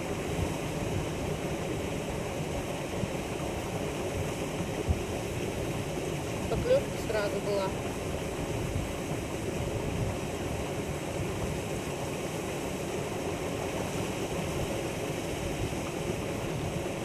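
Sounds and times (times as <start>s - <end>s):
wind on microphone: 0.0s - 17.0s.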